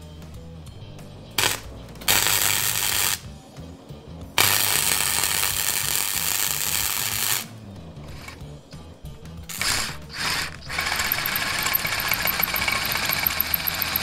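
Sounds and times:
background music: 0.0 - 14.0
electric arc welding: 1.4 - 3.3, 4.4 - 8.4, 9.5 - 14.0.

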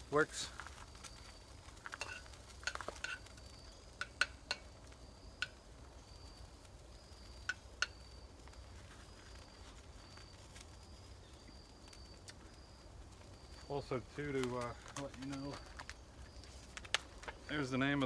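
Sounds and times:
metal utensil clinking on pan: 1.9 - 3.3.

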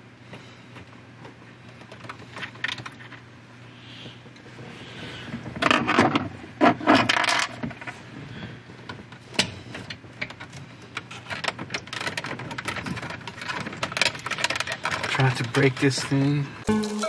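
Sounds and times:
plastic cover scraping rattles: 9.5 - 16.3.

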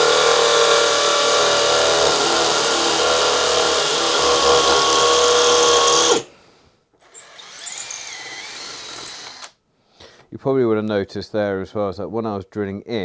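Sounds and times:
hammer drill boring into concrete: 0.0 - 6.3, 7.0 - 9.6.

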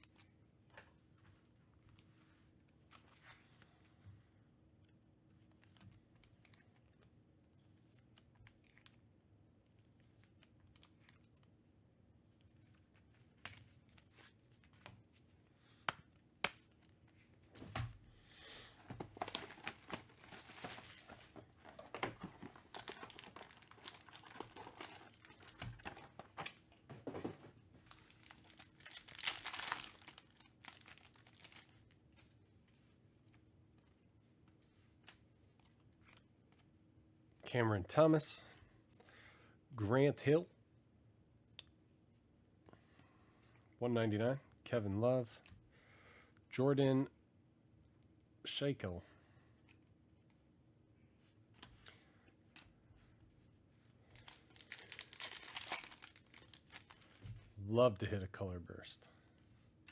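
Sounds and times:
foil wrapper crinkling and tearing: 19.1 - 26.3, 27.9 - 31.9, 54.2 - 57.4.

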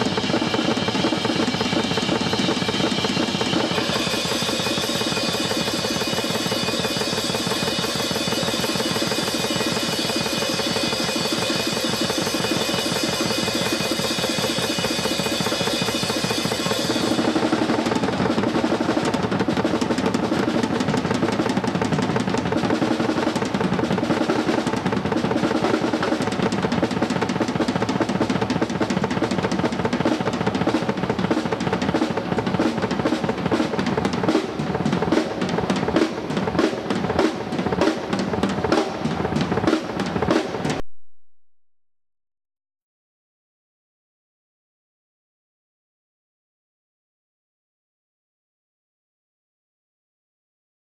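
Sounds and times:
cymbals crashing: 0.0 - 17.8
drum solo rolls: 0.0 - 40.8.

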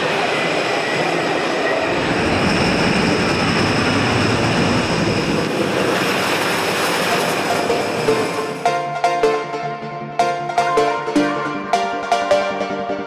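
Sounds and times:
roller coaster rumbling on track: 0.0 - 8.4
plucked background music: 7.1 - 13.0.

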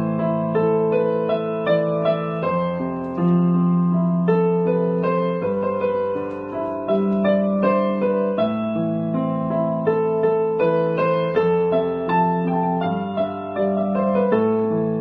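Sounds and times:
electronic keyboard piano chords: 0.0 - 15.0.

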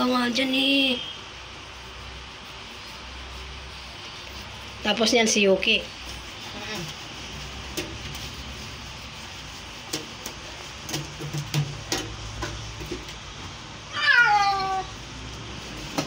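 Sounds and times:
towel rubbing cat: 0.0 - 16.0
cat meowing: 13.9 - 15.0.

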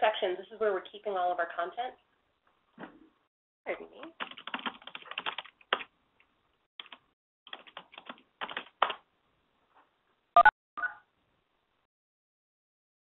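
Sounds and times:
keyboard typing: 4.0 - 5.9, 6.8 - 9.0
short electronic beeps: 10.4 - 11.0.

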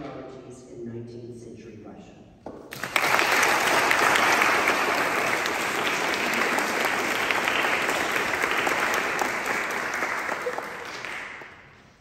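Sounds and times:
audience applause: 2.7 - 11.8.

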